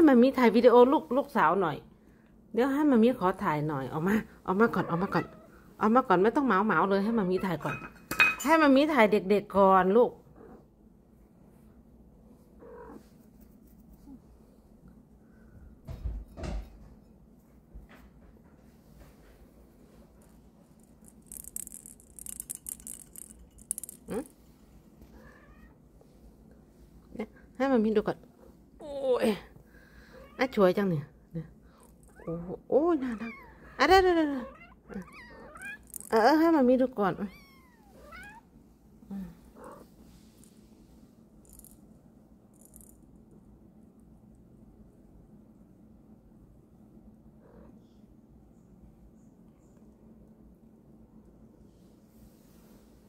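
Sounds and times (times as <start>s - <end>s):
scratching on fleece blanket: 12.4s - 14.7s
kitten mewing: 12.6s - 13.0s, 32.1s - 36.2s.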